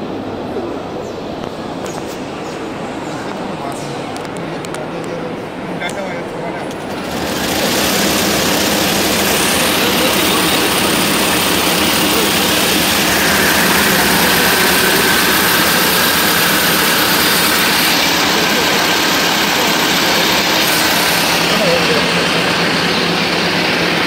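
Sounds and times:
braiding machine running: 6.7s - 24.0s.

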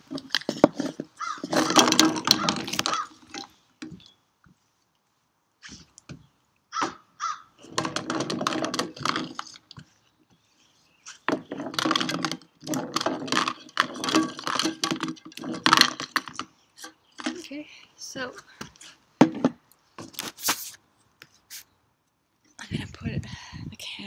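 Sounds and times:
can of rocks rolling on wood: 0.0s - 4.0s, 7.6s - 9.9s, 11.1s - 16.5s.

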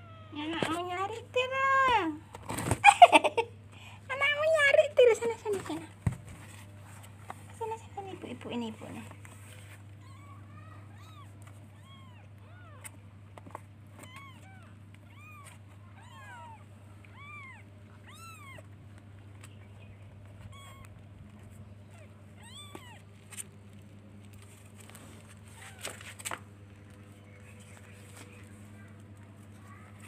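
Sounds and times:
kittens mewing: 9.9s - 13.1s, 14.0s - 18.8s, 20.4s - 23.4s.

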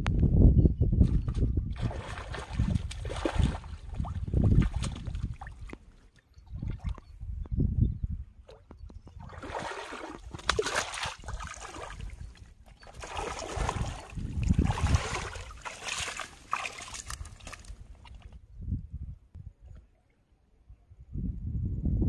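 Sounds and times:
legs wading through water: 1.7s - 7.2s, 8.5s - 18.4s.

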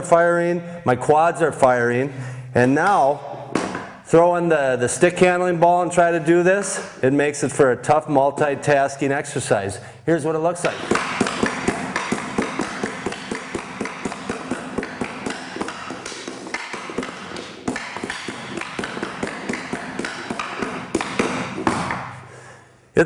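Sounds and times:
hockey stick tapping ball: 10.6s - 22.2s.

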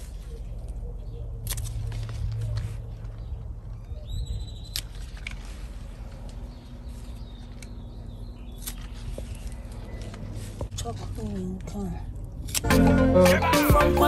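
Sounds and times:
scissors snipping: 1.4s - 2.6s.

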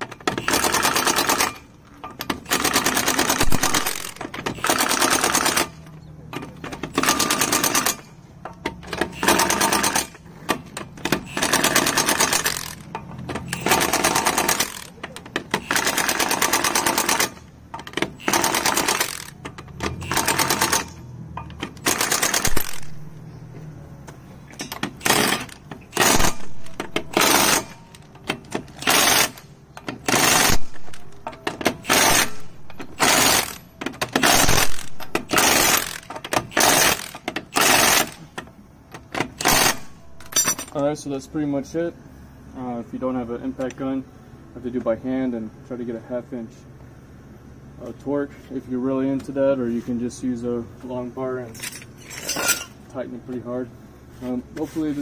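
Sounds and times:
impact wrench hammering: 8.7s - 23.0s, 24.5s - 38.2s.

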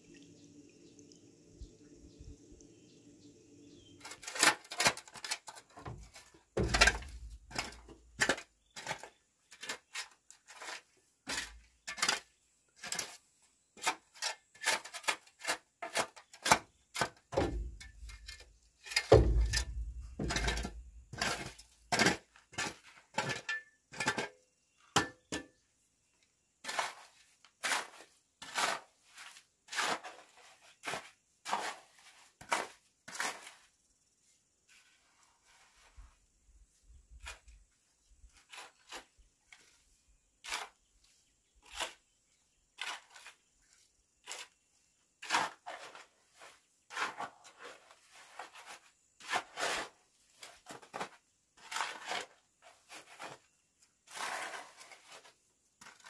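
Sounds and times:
heavy thuds: 19.1s - 21.1s.

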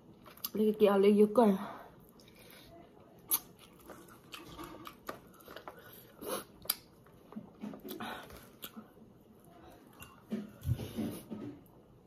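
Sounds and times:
person chewing with wet smacks: 0.2s - 0.6s, 2.0s - 10.8s.

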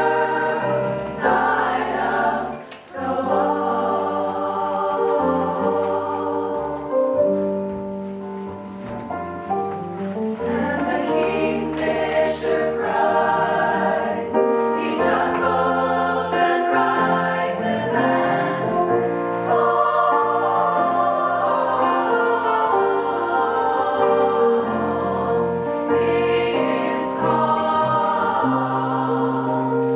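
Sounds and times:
choir singing in harmony: 0.0s - 7.4s, 10.3s - 29.9s.

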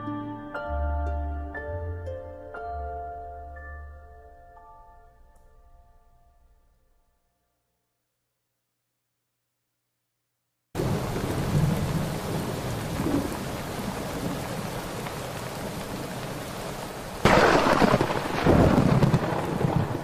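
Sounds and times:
steady rain: 10.8s - 20.0s
thunder clap and rumble: 10.8s - 20.0s.

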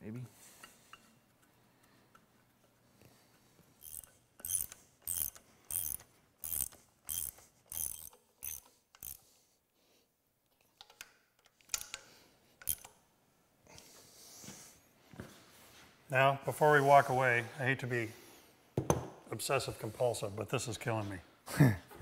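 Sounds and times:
ratchet wrench clicking: 3.8s - 9.3s, 12.6s - 12.9s.

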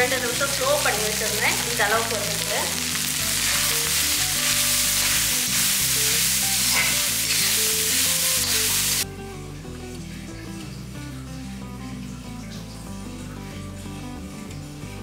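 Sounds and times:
rice sizzling in oil: 0.0s - 9.1s
metal spoon stirring in pan: 2.8s - 8.9s.

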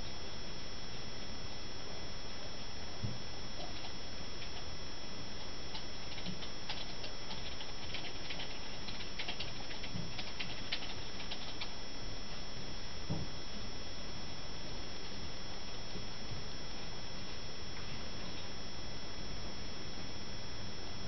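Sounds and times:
faint high whine: 0.0s - 21.0s
computer mouse ticks: 3.6s - 4.7s, 5.4s - 11.8s.

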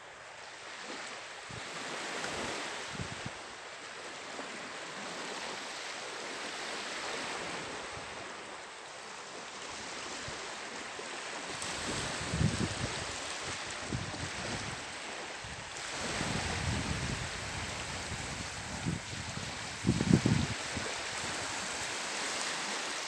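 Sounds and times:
surf washing on sandy shore: 0.0s - 23.0s
wind bumps on microphone: 2.3s - 3.4s, 11.5s - 14.9s, 15.5s - 21.9s.

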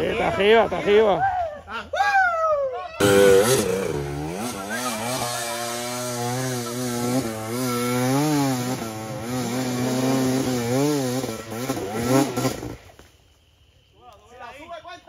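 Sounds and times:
dirt bike engine revving: 3.0s - 12.9s.

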